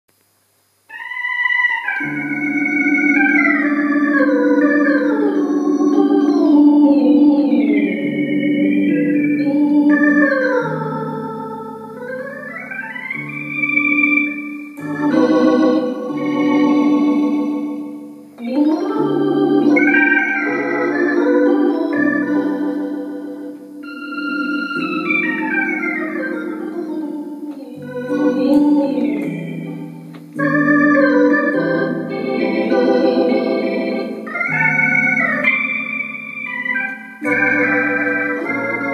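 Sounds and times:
accordion playing a tune: 0:14.0 - 0:18.0, 0:19.2 - 0:34.8, 0:35.5 - 0:38.9.

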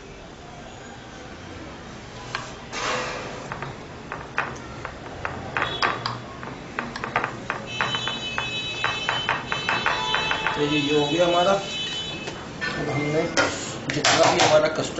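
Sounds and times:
high steady ringing tone: 0:07.6 - 0:12.3.

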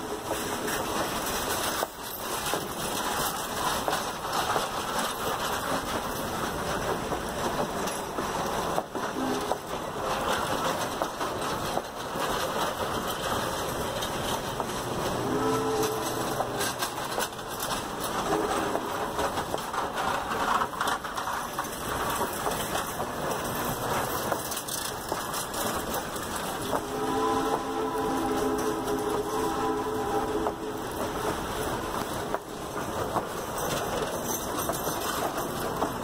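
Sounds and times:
train wheels rumbling on rail: 0:00.0 - 0:36.0
clicks and knocks from trucks: 0:00.4 - 0:26.9.

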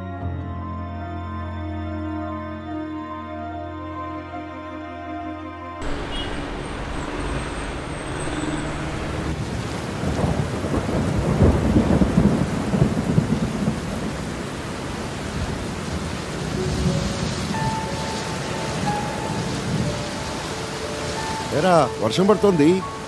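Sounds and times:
thunder rumble: 0:05.8 - 0:21.6
steady rain: 0:05.8 - 0:23.0.

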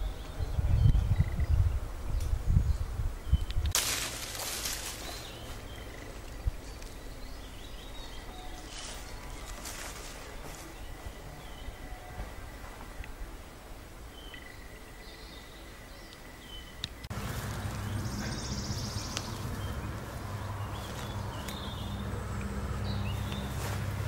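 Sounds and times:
small birds chirping: 0:00.0 - 0:13.4, 0:14.0 - 0:24.0
low motor hum: 0:17.0 - 0:24.0.

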